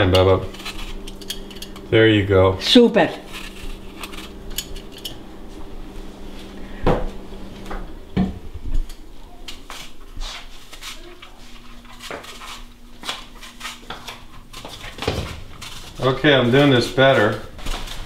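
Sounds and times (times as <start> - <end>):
peeler scraping apple skin: 0.0 - 1.8.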